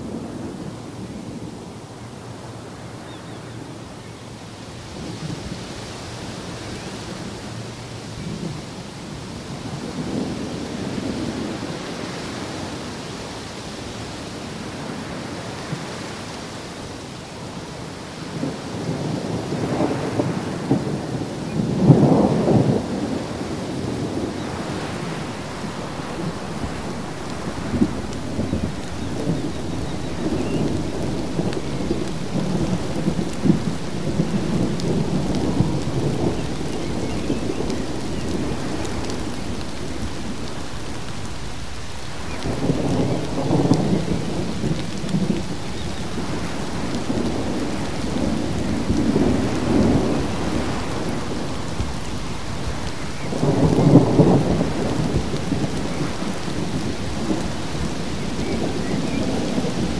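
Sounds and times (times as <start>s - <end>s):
heavy rain falling: 0.0s - 59.9s
thunder rumbling: 18.3s - 59.9s.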